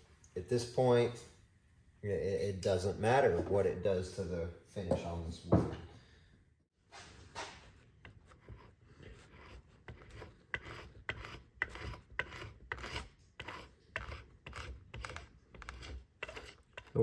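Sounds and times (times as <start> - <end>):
metal scraper scraping wood: 7.8 - 17.0.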